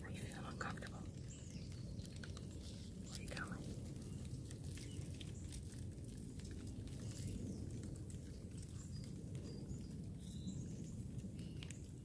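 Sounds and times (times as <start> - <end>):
low rumble on microphone: 0.0 - 12.0.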